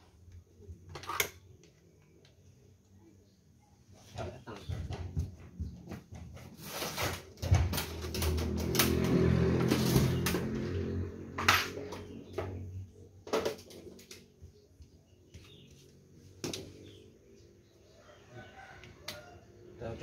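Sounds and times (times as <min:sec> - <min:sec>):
tools clattering on concrete: 0:11.3 - 0:12.6.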